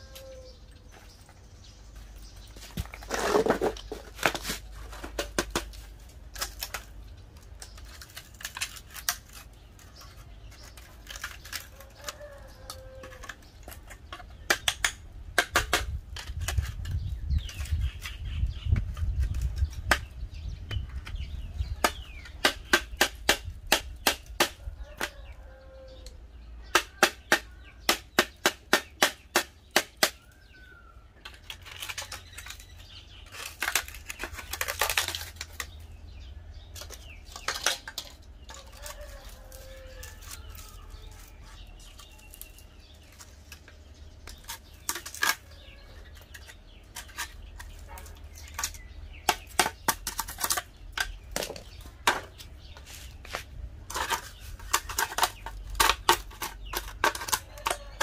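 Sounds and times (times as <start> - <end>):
rasping scraping: 31.2 - 58.0.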